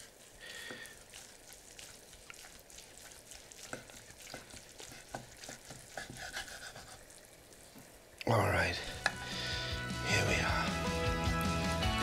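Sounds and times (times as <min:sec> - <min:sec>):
faint crackle: 0:00.0 - 0:09.1.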